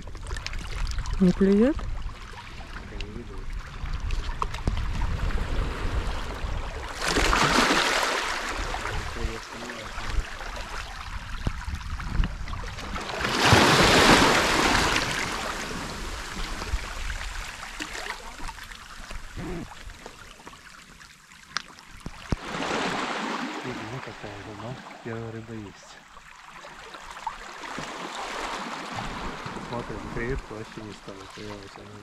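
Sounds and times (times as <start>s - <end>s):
waves washing over pebbles: 4.0s - 11.8s, 12.4s - 20.0s, 22.0s - 25.9s, 27.4s - 32.0s.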